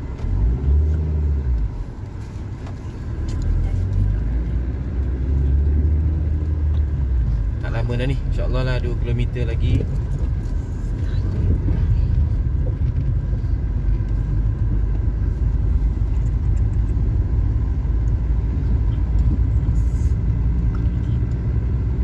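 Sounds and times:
car engine and tyres rumbling: 0.0 - 22.0.

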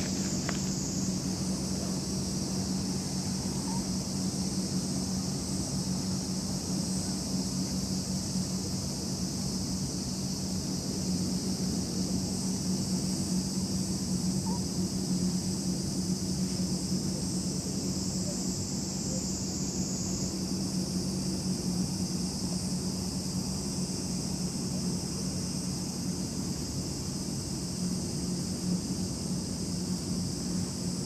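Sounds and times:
low steady hum: 0.0 - 8.8
high-pitched insect chorus: 0.0 - 31.0.

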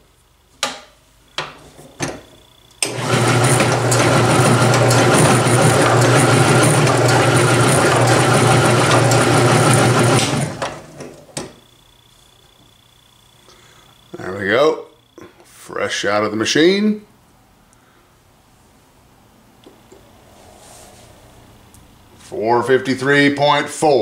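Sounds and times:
drill press motor hum: 2.8 - 11.8.

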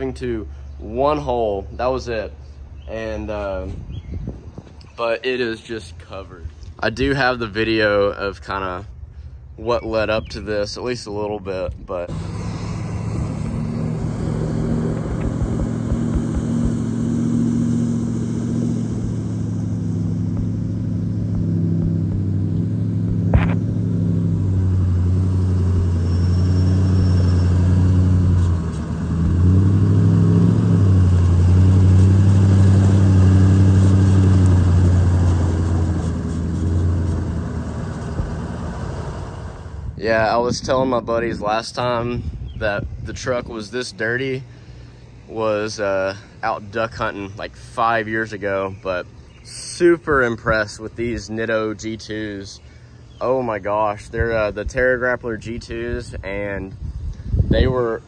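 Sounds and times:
truck engine pulling under load: 12.1 - 40.0.

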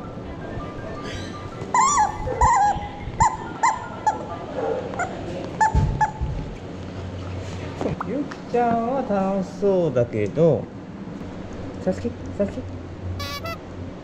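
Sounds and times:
squeaky toy squawking: 1.0 - 4.2, 13.2 - 13.6.

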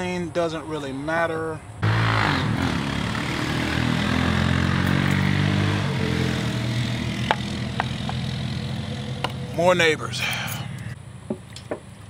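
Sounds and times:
small engine running: 1.8 - 9.6.

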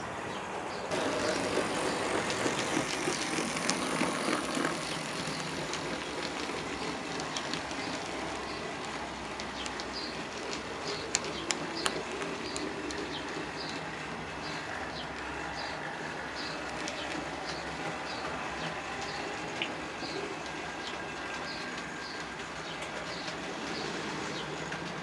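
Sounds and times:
model train wheels rumbling on rail: 0.0 - 25.0
sharp clicks: 2.1 - 15.3.

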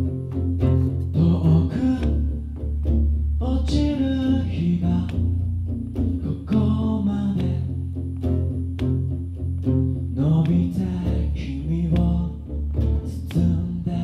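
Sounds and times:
acoustic bass guitar: 0.0 - 14.0
acoustic guitar: 0.0 - 14.0
person singing: 0.7 - 2.6, 3.4 - 5.5, 6.1 - 7.9, 10.1 - 14.0.

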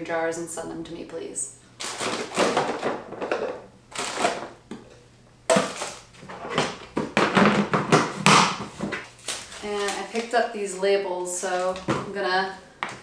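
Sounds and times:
containers clattering in plastic bin: 1.8 - 4.6, 5.5 - 10.3.

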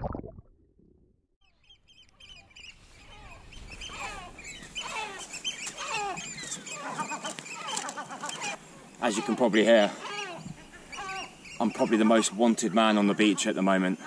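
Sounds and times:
oystercatchers alarm calls: 1.6 - 14.0
gulls giving alarm calls: 3.0 - 14.0.

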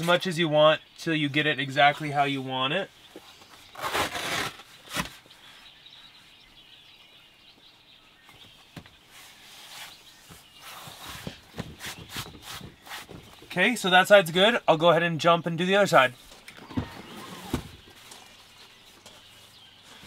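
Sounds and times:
rubber mat rustling: 3.2 - 5.3, 8.7 - 13.6, 16.3 - 20.0.

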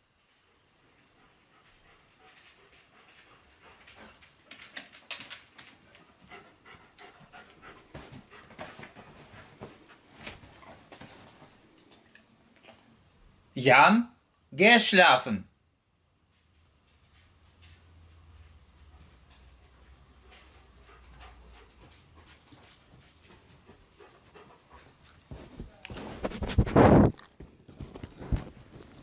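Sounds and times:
dog panting: 1.0 - 10.8, 18.8 - 26.6
dog footsteps ticking: 1.8 - 11.5, 16.8 - 25.3.

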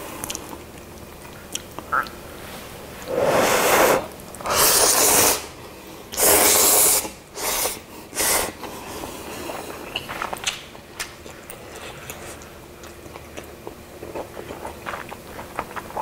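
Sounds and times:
man slurping noodles: 3.1 - 5.4.

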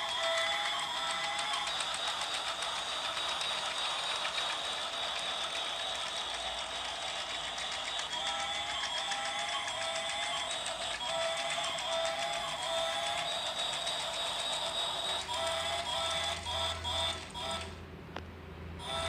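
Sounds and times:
toy train motor whirring: 0.0 - 17.8, 18.8 - 19.0.

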